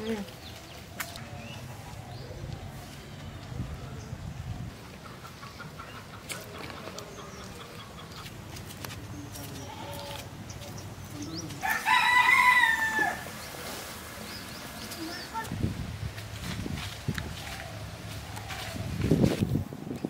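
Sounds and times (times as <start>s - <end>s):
rooster crowing: 11.6s - 13.4s.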